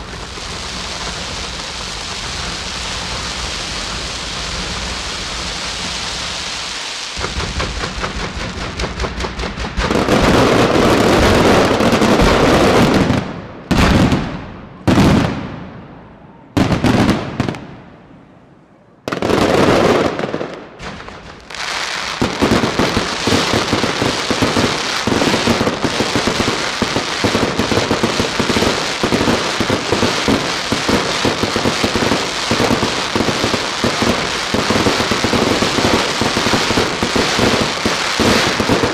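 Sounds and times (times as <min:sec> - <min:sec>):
fireworks crackling: 0:00.0 - 0:15.8, 0:16.6 - 0:17.9, 0:19.1 - 0:38.9
fireworks shells bursting: 0:04.2 - 0:13.2.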